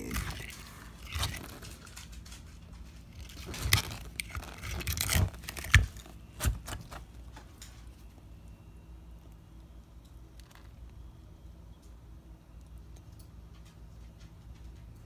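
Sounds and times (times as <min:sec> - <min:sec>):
eggshell scraping and crunching: 0:00.0 - 0:07.5.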